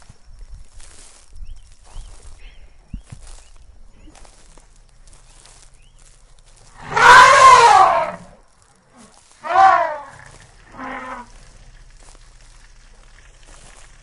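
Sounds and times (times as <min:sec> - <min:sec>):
elephant trumpeting: 0:06.8 - 0:08.4, 0:09.4 - 0:11.3.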